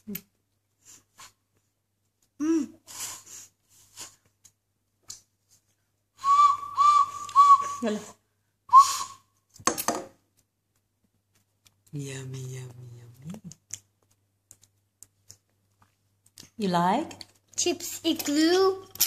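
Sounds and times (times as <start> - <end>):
toy whistle toots: 8.7 - 9.2.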